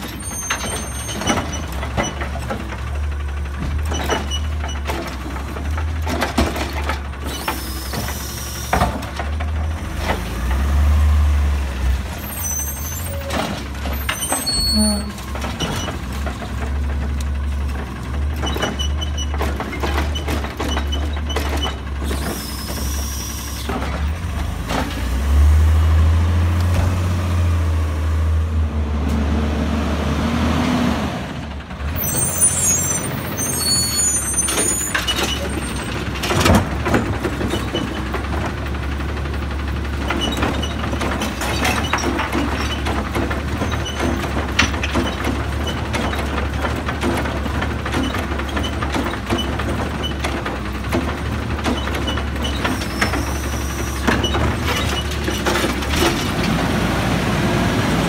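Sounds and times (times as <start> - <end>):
garbage truck engine rumbling: 0.0 - 58.0
air brake squeal and hiss: 7.3 - 8.8, 22.0 - 23.7, 52.7 - 54.1.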